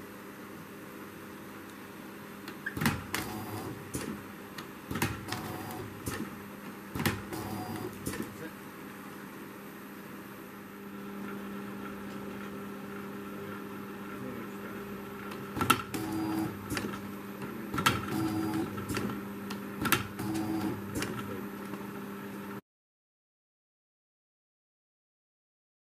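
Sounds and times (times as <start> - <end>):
labelling machine humming: 3.0 - 4.3, 7.1 - 8.7, 10.6 - 22.6.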